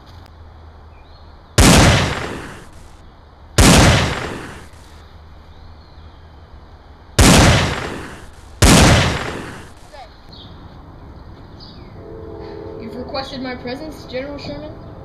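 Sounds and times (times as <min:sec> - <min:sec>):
gunshots with long echo: 0:01.6 - 0:02.9, 0:03.6 - 0:04.9, 0:07.2 - 0:10.0.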